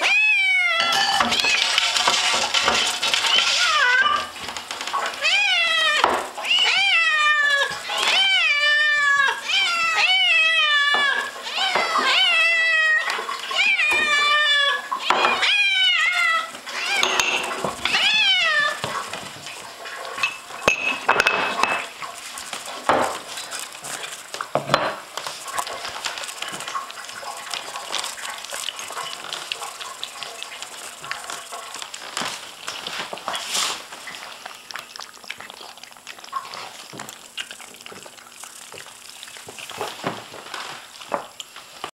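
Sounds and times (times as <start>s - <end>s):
kittens meowing: 0.0s - 1.7s, 3.3s - 4.3s, 5.2s - 17.2s, 17.9s - 18.9s
food bowls clattering: 0.7s - 5.4s, 16.8s - 34.2s.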